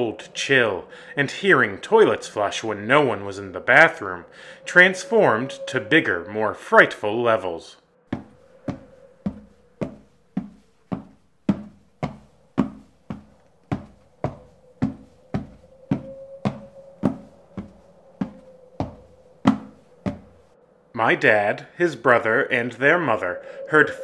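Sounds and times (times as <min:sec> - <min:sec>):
faint steady drone: 0:00.0 - 0:24.0
slow footsteps: 0:08.1 - 0:20.6.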